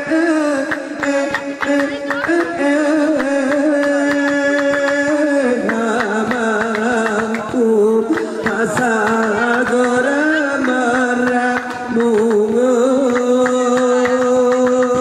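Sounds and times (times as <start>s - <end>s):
man singing melodic line: 0.0s - 15.0s
hand claps and slaps on pillows: 5.7s - 7.5s, 10.6s - 15.0s.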